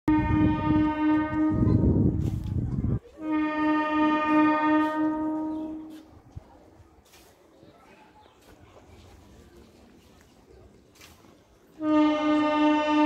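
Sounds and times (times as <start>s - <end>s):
train horn blasts: 0.1s - 2.4s, 3.1s - 6.1s, 11.7s - 13.0s.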